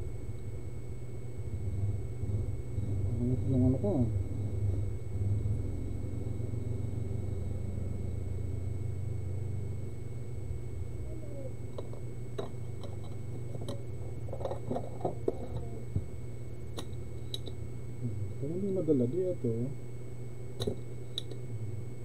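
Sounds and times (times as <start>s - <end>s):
faint high-pitched whine: 0.0s - 22.0s
low electrical hum: 0.0s - 22.0s
metal tools tapping circuit board: 11.7s - 15.7s.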